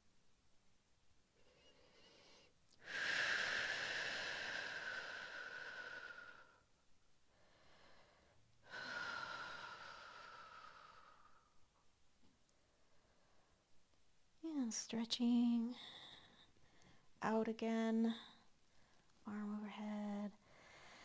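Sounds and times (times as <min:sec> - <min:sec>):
woman exhaling: 0:01.4 - 0:06.6.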